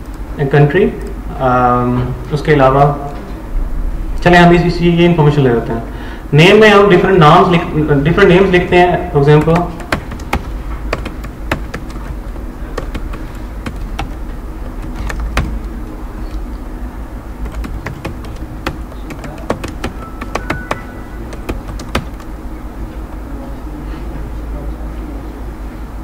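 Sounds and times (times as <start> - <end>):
steady low hum: 0.0 - 26.0
keyboard key clicks: 9.4 - 15.7, 17.4 - 22.3.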